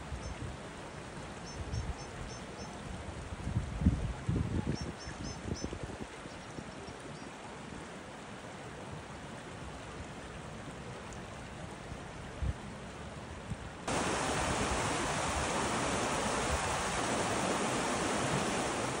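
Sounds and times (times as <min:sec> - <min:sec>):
stream rushing over rocks: 0:13.9 - 0:19.0.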